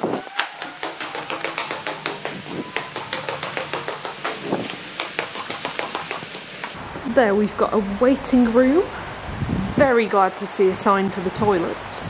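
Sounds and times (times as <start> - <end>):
footsteps on concrete stairs: 0.0 - 6.8.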